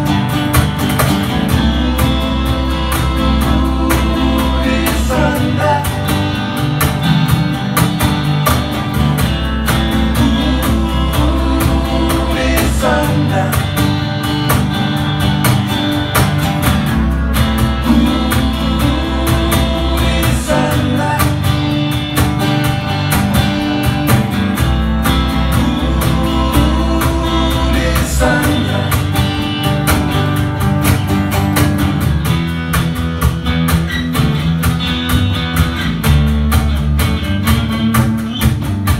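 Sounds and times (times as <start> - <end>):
acoustic guitars strummed: 0.0 - 38.9
cajon beat: 0.0 - 38.9
man singing: 1.3 - 6.4, 9.9 - 14.3, 17.7 - 22.0, 25.3 - 29.8.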